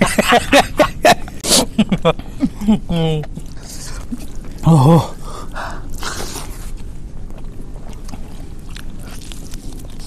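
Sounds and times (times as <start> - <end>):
steady hiss: 0.0 - 10.0
biting into meat: 7.4 - 10.0.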